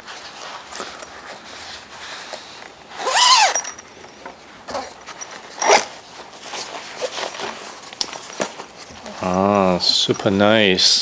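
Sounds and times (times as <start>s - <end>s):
zipper being pulled open: 2.9s - 3.8s, 4.7s - 6.0s.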